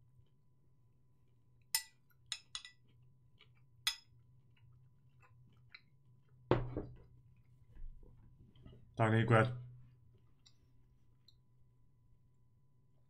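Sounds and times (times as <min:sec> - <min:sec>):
metal spoon clinking against bowl: 0:01.7 - 0:02.8.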